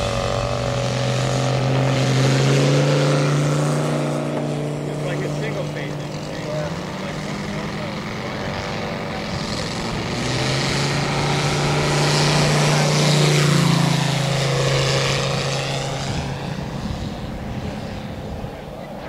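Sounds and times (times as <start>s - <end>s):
model plane radial engine running: 0.0s - 19.0s.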